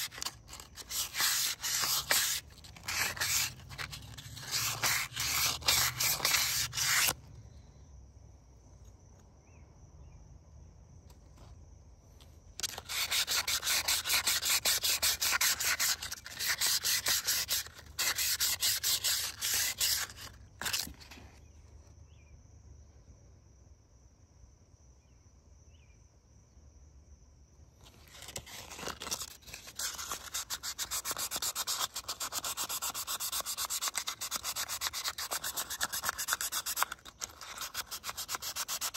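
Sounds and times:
sandpaper rasping on metal: 0.0 - 7.2, 12.6 - 20.9, 28.6 - 38.9.

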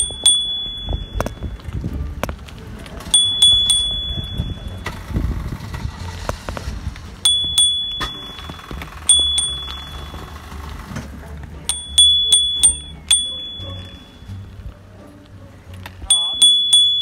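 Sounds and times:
bicycle bell ringing: 0.0 - 1.6, 3.1 - 5.0, 7.2 - 10.6, 11.7 - 14.5, 16.1 - 17.0
steady low rumble: 0.0 - 17.0.

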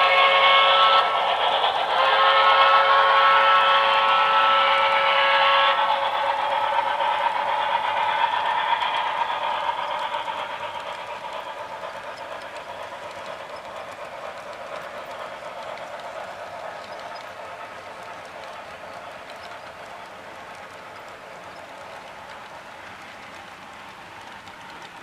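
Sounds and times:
steam whistle: 0.0 - 6.9
model train rolling on rails: 0.0 - 25.0.

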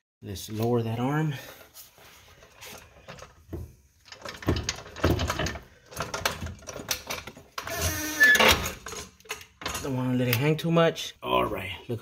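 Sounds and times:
metal clunks and rattles: 2.6 - 10.1
metal scraping creak: 7.6 - 9.2.

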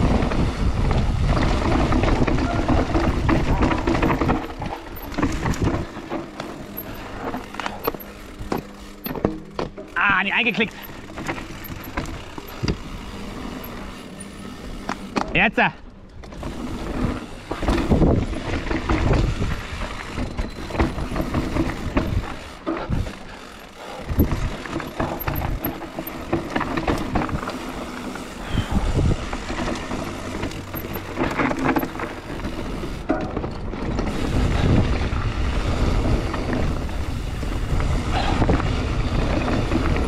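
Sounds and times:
wind noise on microphone: 0.0 - 6.0, 16.3 - 23.2, 24.0 - 25.8, 28.4 - 29.7, 32.8 - 40.0
bike rattling over bumps: 0.0 - 40.0
tyres rolling over gravel: 0.0 - 40.0.

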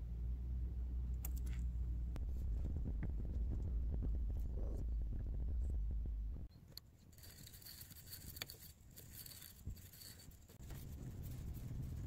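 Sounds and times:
low hum: 0.0 - 6.6, 10.6 - 12.0
screwdriver scraping metal: 7.1 - 10.6.

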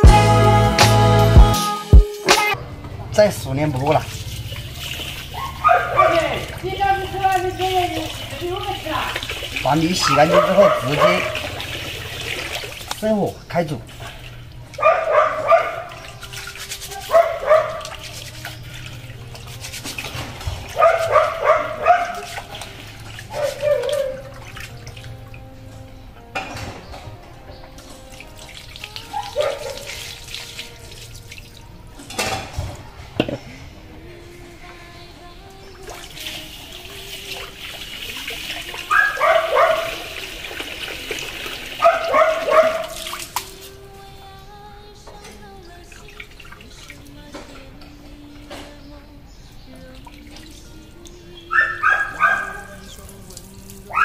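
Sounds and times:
hands washing rice in water: 3.7 - 25.6, 27.8 - 32.4, 35.8 - 43.9
dog barking: 5.4 - 6.5, 9.9 - 11.5, 14.8 - 16.0, 16.9 - 18.1, 20.7 - 22.4, 23.3 - 24.3, 29.0 - 30.0, 38.8 - 40.2, 41.8 - 43.2, 51.5 - 52.9.

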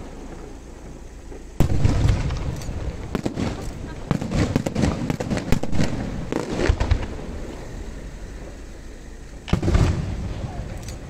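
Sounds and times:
firework bangs and crackles: 0.0 - 11.0
loud firework boom: 1.6 - 8.1, 9.5 - 10.8.

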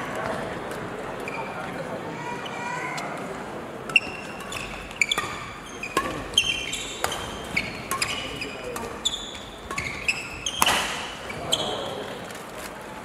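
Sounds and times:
shoes squeaking on court floor: 0.2 - 1.8, 3.9 - 12.9
racket hitting shuttlecock: 3.9 - 11.8.

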